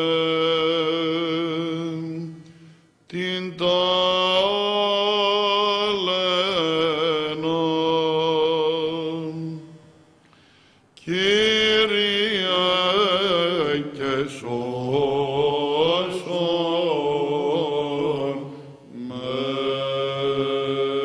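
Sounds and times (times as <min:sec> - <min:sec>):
men singing unaccompanied chant: 0:03.1 - 0:09.6, 0:11.0 - 0:21.0.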